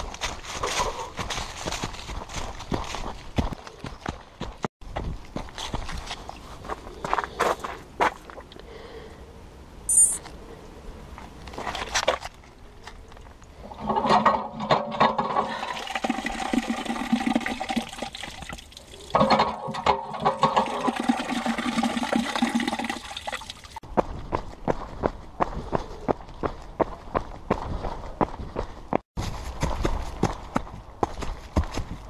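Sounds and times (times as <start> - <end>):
water gushing from fountain: 15.2 - 23.8.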